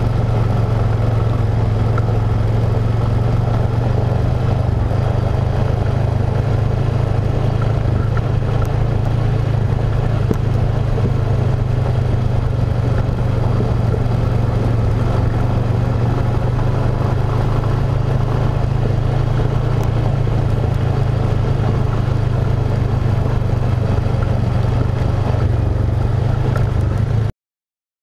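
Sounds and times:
atv engine running: 0.0 - 27.3.

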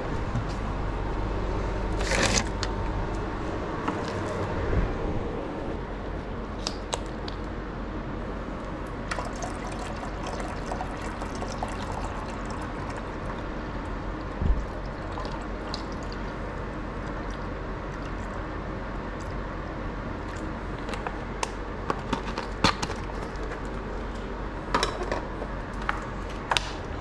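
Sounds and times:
running liquid: 9.0 - 18.5.

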